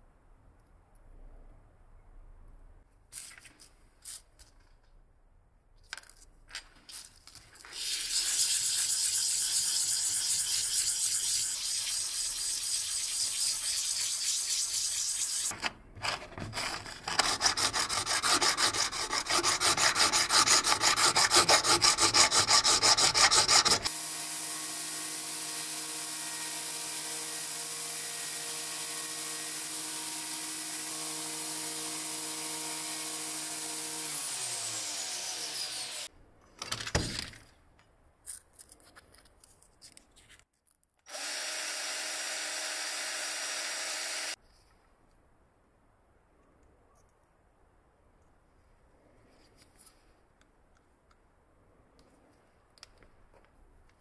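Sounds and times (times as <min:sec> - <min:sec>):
sanding on abrasive paper: 0:08.1 - 0:15.5, 0:16.6 - 0:23.9
hand file rasping on brass: 0:16.5 - 0:23.9
electric belt sander running: 0:41.1 - 0:44.4.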